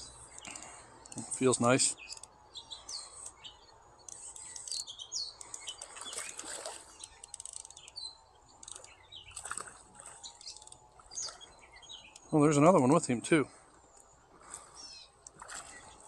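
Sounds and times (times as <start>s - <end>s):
birds chirping and calling: 0.0s - 16.0s
fish splashing at surface: 5.9s - 7.0s, 15.3s - 16.0s.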